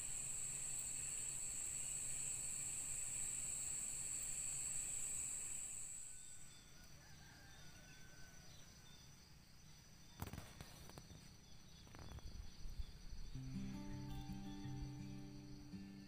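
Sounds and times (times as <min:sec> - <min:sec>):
crickets chirping: 0:00.0 - 0:16.0
acoustic guitar music: 0:13.3 - 0:16.0.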